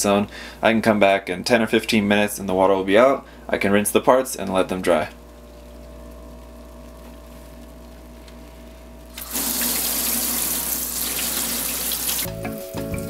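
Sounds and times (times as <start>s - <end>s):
tap water running into steel sink: 9.2s - 12.3s.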